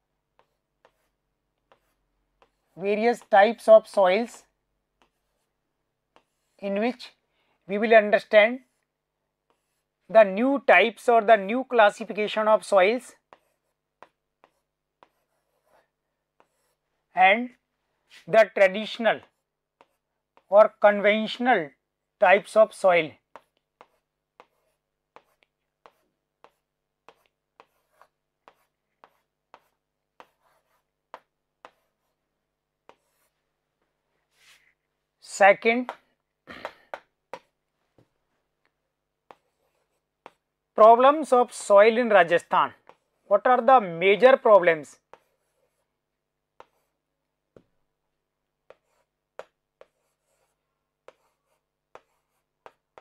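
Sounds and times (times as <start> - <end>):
marker pen on whiteboard: 0.0 - 53.0
marker tapping on whiteboard: 0.3 - 3.3, 13.3 - 15.8, 19.2 - 20.5, 23.3 - 32.1, 32.8 - 33.3, 35.8 - 38.1, 39.3 - 40.4, 46.6 - 46.9, 47.5 - 47.8, 48.6 - 53.0.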